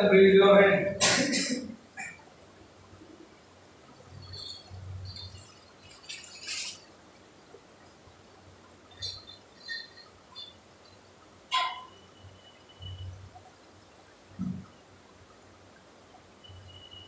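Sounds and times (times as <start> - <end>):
faint high chirps: 3.8 - 6.9, 8.7 - 14.8, 15.8 - 17.0.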